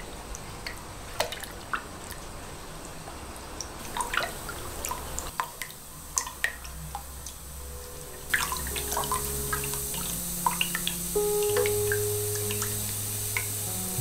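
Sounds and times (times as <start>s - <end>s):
background music: 7.4s - 14.0s.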